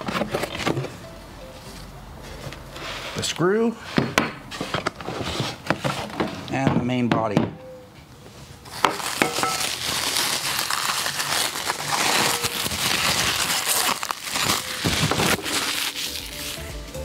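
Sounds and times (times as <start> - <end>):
plastic wrap crinkling: 8.6 - 16.7.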